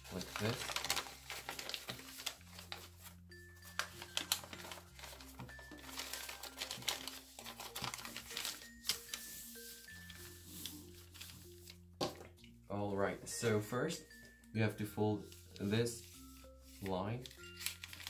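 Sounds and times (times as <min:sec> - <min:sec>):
paper crinkling and rustling: 0:00.0 - 0:12.2, 0:15.1 - 0:18.0.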